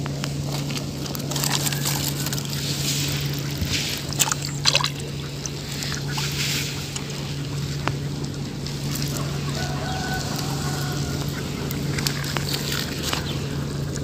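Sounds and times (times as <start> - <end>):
steady low hum: 0.0 - 14.0
splash into muddy water: 1.3 - 5.0.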